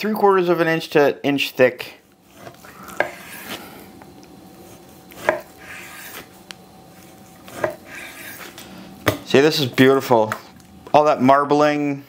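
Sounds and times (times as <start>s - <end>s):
knife sawing through meat: 2.3s - 3.8s, 4.6s - 6.3s, 7.4s - 8.6s.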